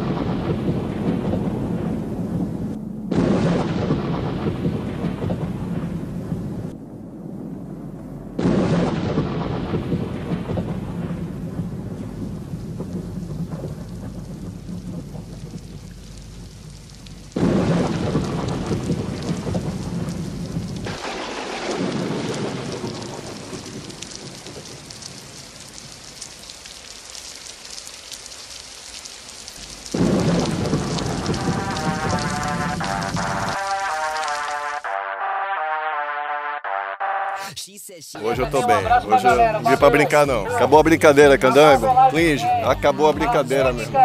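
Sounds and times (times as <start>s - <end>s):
thunder claps: 0.0s - 26.4s, 29.5s - 34.9s
steady rain: 0.0s - 34.9s, 38.2s - 44.0s.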